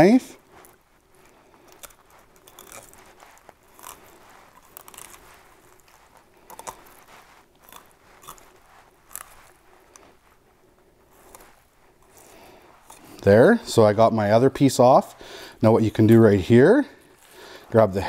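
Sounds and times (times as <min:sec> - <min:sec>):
knife crunching and scraping fish: 0:00.6 - 0:10.2, 0:11.0 - 0:13.2.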